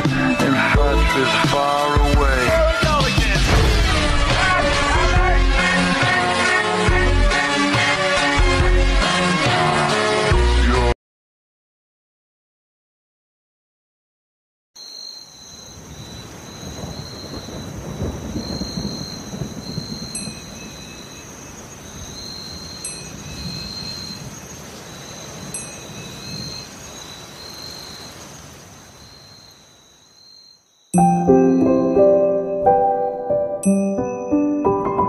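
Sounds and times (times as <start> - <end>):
thunder rumbling: 3.2 - 6.5, 15.8 - 28.2
rain: 14.8 - 30.7
soft chime: 20.2 - 21.3, 22.8 - 23.2, 25.6 - 26.2, 31.0 - 35.0.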